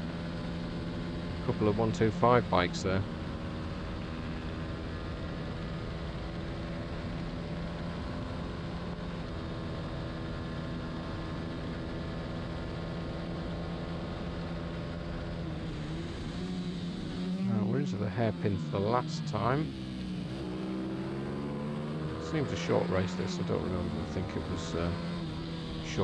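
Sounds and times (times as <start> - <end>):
racing motorcycle engine: 0.0 - 26.0.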